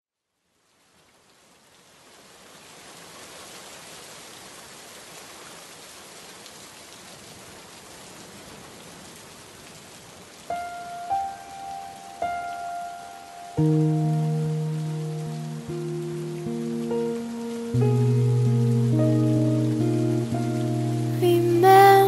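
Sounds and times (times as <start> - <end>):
steady rain falling: 0.2 - 22.0
music with held notes: 10.6 - 22.0.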